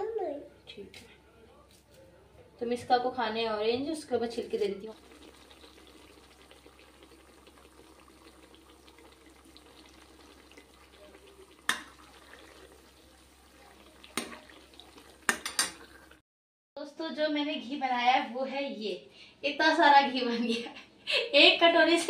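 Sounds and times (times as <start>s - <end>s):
faint steady sizzle: 2.6s - 16.2s
steel ladle clicking on pan: 15.3s - 15.8s.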